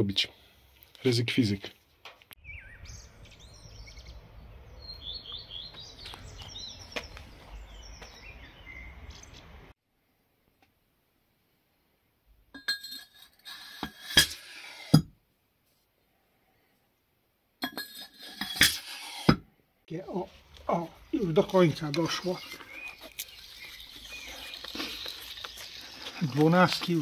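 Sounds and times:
small birds chirping: 1.7 - 9.7, 19.9 - 27.0
sharp clinks and knocks: 12.6 - 15.1, 17.6 - 19.4.

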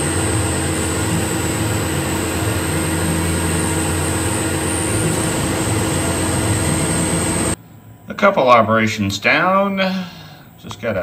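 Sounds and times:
milling machine cutting metal: 0.0 - 7.6.

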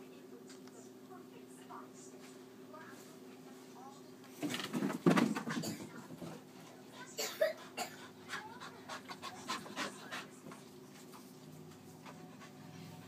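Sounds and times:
dog panting: 5.6 - 13.0.

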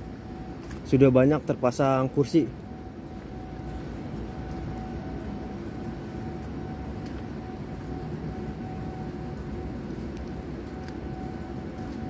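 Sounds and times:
distant machinery rumble: 0.0 - 12.0
faint steady hum: 0.0 - 12.0
light ticks: 9.9 - 11.0.

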